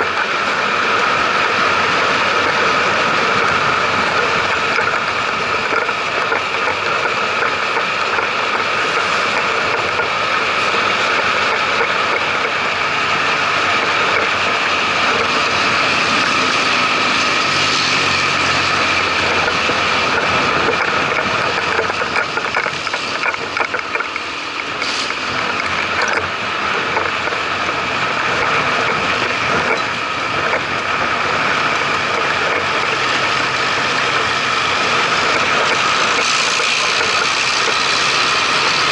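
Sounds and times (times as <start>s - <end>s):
constant whine: 0.0s - 38.9s
passing traffic: 0.0s - 38.9s
tyres on road: 0.0s - 38.9s
wind noise: 0.0s - 38.9s.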